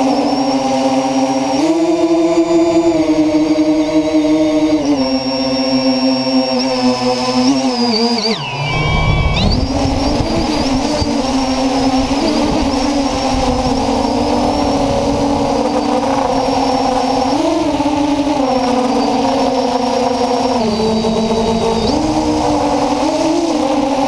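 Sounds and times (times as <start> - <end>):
drone motors whining: 0.0 - 24.0
low rushing noise: 8.4 - 24.0.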